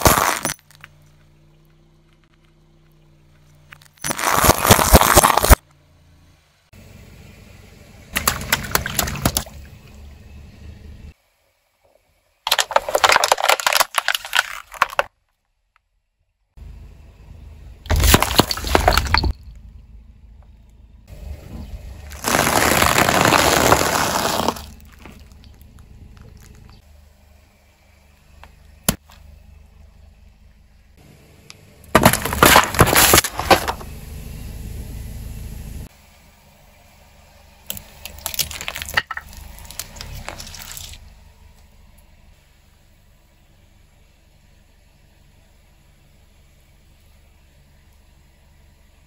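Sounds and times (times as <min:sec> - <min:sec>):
objects crunching under tyre: 0:00.0 - 0:05.7, 0:08.1 - 0:09.6, 0:12.5 - 0:15.3, 0:17.9 - 0:19.7, 0:21.5 - 0:26.9, 0:31.9 - 0:34.0, 0:37.7 - 0:41.0.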